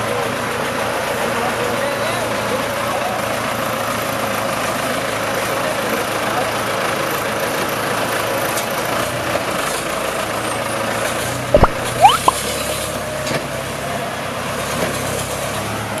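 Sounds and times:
short sharp rising squeals: 11.6 - 12.4.

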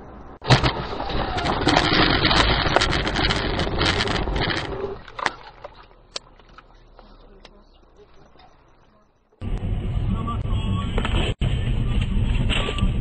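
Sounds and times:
rumbling noise: 0.0 - 5.1, 7.0 - 13.0
vehicle crash bang: 0.4 - 4.8
debris clicks and knocks: 0.4 - 5.7.

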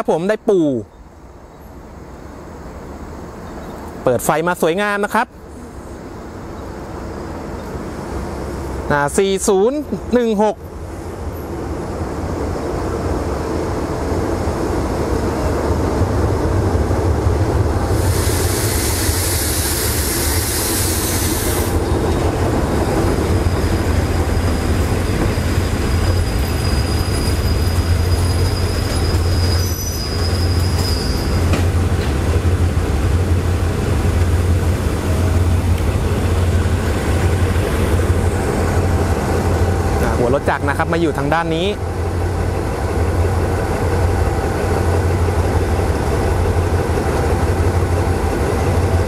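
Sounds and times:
diesel locomotive rumbling: 0.7 - 49.0
train wheels on rails: 10.6 - 49.0
loud hiss: 17.8 - 21.9
thin high squeal: 25.6 - 31.4.

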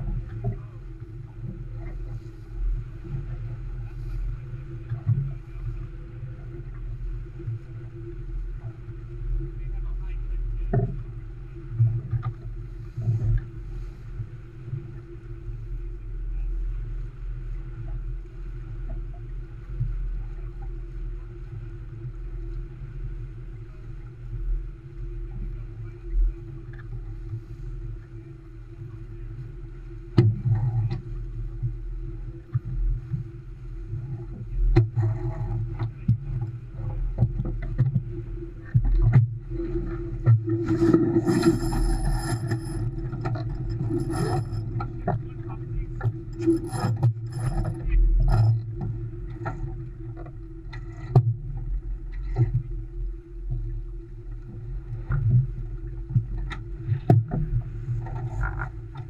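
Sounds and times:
water rumbling along hull: 0.0 - 59.0
wind: 0.0 - 59.0.

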